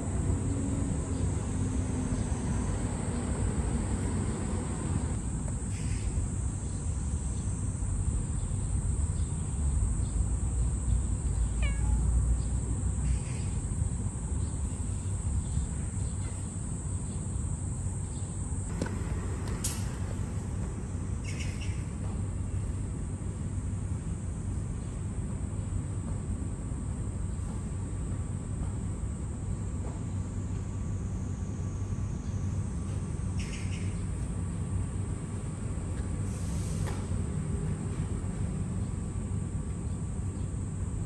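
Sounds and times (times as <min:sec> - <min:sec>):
kitten meowing: 0:11.5 - 0:12.2.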